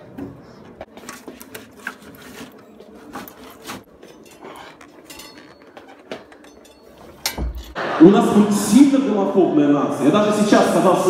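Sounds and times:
handling clicks and knocks: 0:00.8 - 0:07.8
chair being handled: 0:00.9 - 0:07.8.

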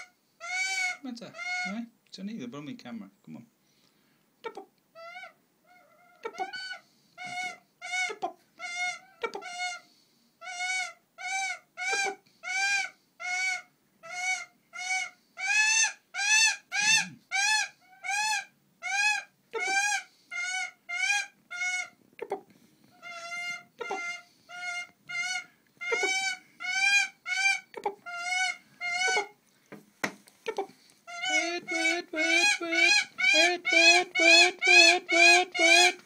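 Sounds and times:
hawk nasal calls: 0:10.4 - 0:22.4, 0:23.0 - 0:29.4, 0:30.5 - 0:36.0.

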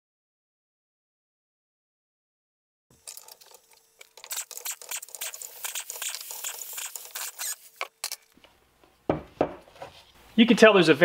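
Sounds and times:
ratchet clicking and rattling: 0:03.0 - 0:08.3.

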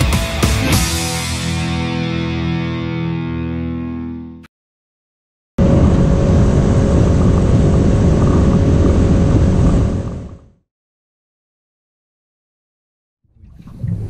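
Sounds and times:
outboard motor running: 0:05.6 - 0:10.6
wind on microphone: 0:05.6 - 0:10.6.

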